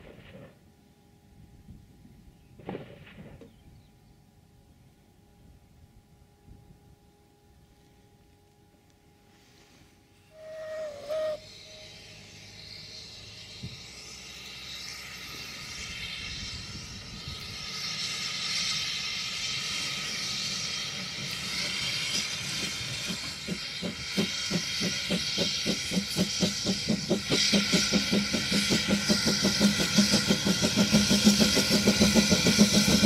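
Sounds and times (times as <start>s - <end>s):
steam locomotive exhaust beats: 0.0s - 33.0s
steam hissing: 9.3s - 33.0s.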